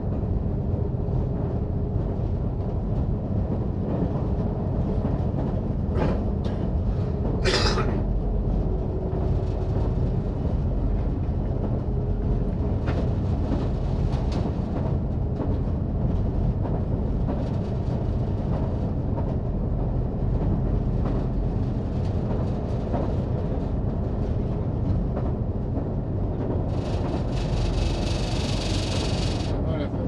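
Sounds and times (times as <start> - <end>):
train rumbling along track: 0.0 - 30.0
faint wheel clicks: 26.7 - 29.5.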